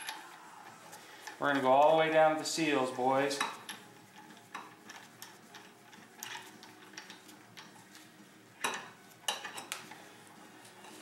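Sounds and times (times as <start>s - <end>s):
hand tools clicking on metal: 3.3s - 7.8s.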